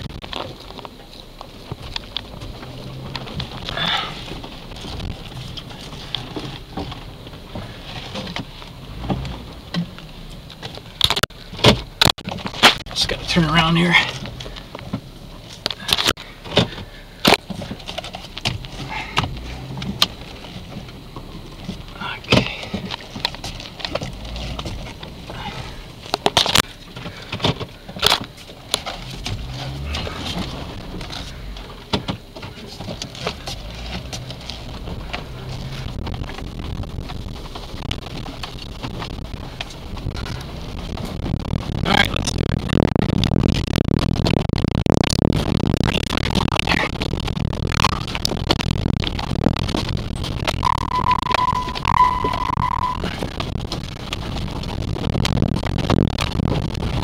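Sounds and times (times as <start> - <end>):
vehicle knocks and rattles: 0.0 - 13.1, 14.1 - 50.6
low engine rumble: 0.0 - 57.0.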